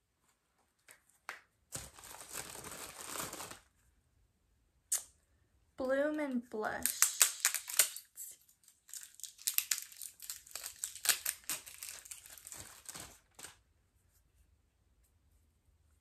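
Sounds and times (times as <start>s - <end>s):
cardboard packaging rustling: 1.7s - 3.7s, 8.6s - 13.6s.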